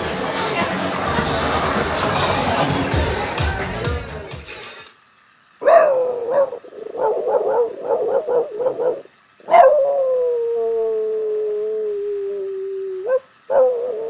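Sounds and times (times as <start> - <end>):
dog howling: 5.6 - 14.0.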